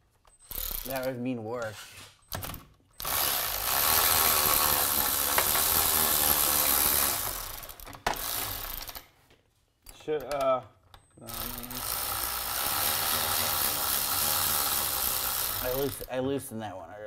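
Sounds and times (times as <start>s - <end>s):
ratchet wrench clicking: 0.4s - 1.1s, 11.0s - 16.2s.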